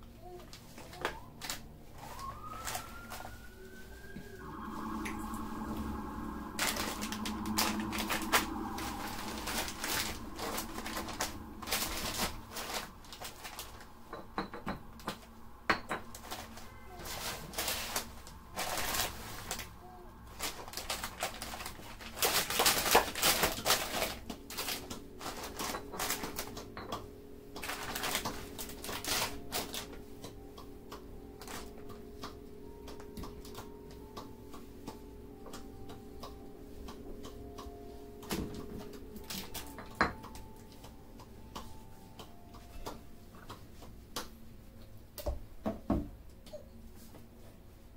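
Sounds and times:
steady low hum: 0.8s - 45.1s
plastic bags crinkling: 6.0s - 14.5s, 16.1s - 19.7s, 20.3s - 26.9s, 27.6s - 30.0s.

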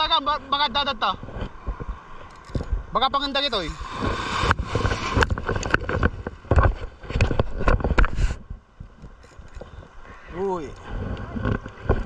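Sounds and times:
shallow surf splashing: 3.0s - 7.6s.

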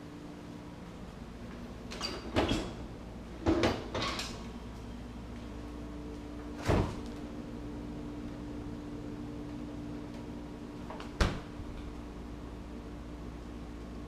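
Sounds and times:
refrigerator door thud: 6.6s - 7.0s, 11.0s - 11.7s.

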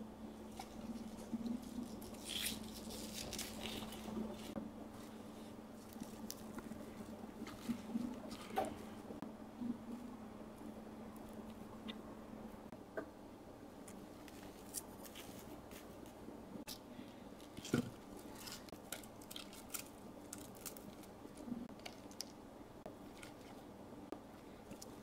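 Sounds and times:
leaves crinkling: 0.5s - 9.0s, 17.4s - 22.4s.

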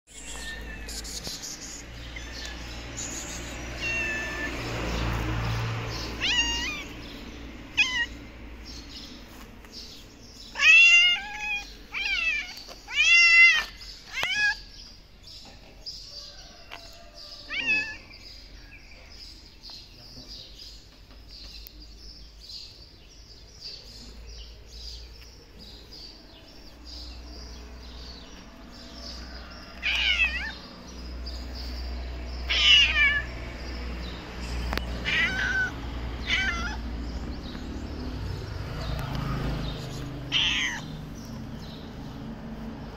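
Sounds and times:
cat meowing: 0.1s - 1.2s, 3.6s - 4.8s, 6.0s - 8.2s, 10.5s - 14.7s, 17.4s - 18.0s, 29.8s - 30.6s, 32.4s - 33.3s, 34.5s - 36.9s, 40.3s - 40.9s.

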